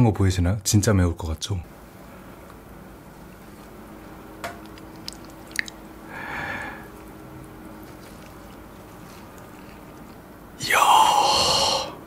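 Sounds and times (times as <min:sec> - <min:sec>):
wet squelch of sauce: 0:04.6 - 0:05.9, 0:06.9 - 0:10.3.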